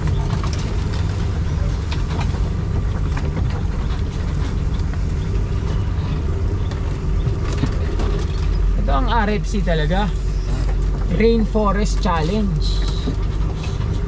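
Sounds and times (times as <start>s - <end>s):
knocks and rattles: 0.0s - 9.4s
low engine drone: 0.0s - 14.0s.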